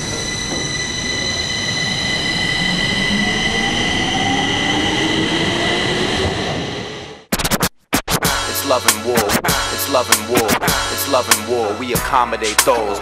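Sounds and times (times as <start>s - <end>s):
train rumble: 0.0s - 7.2s
high-pitched whining tones: 0.0s - 7.3s
motor whine rising in pitch: 0.0s - 7.3s.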